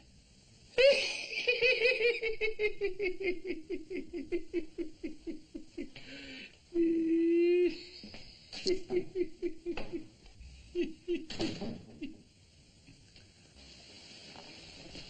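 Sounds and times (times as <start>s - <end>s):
man laughing: 0.8s - 6.1s, 8.6s - 12.2s.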